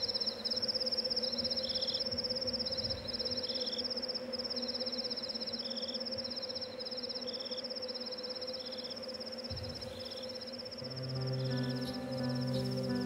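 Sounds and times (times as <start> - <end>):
crickets chirping: 0.0 - 13.0
soft music with low notes: 10.8 - 13.0.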